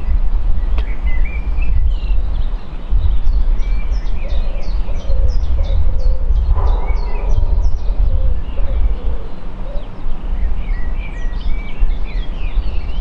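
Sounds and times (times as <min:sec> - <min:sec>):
songbird chirping: 0:00.0 - 0:13.0
wind buffeting microphone: 0:00.0 - 0:13.0.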